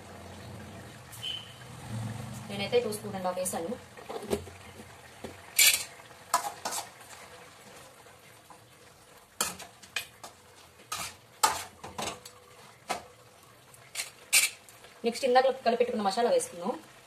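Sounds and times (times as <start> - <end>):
metal spoon scraping a pot: 5.6 - 7.2, 9.4 - 12.3, 13.9 - 14.6.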